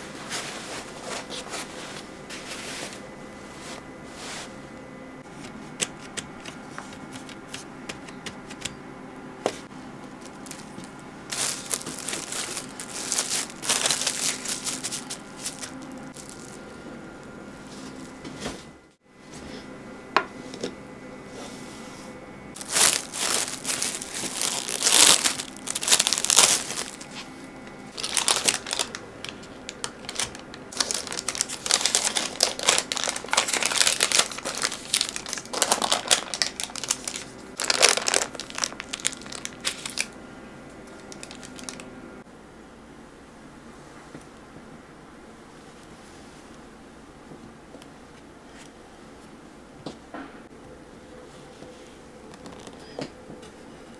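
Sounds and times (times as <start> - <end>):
plastic cling wrap crinkling: 10.2 - 16.7, 22.6 - 27.3, 27.9 - 40.2, 40.9 - 41.9.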